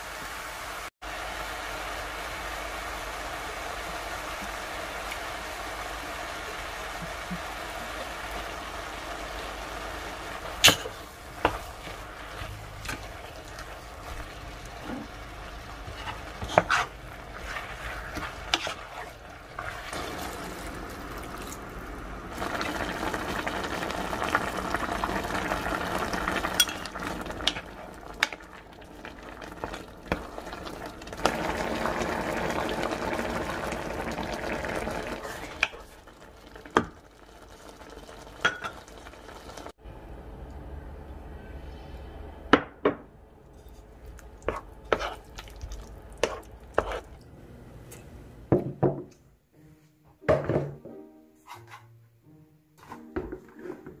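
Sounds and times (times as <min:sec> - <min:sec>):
food sizzling in a pan: 0:00.0 - 0:39.8, 0:44.5 - 0:47.1.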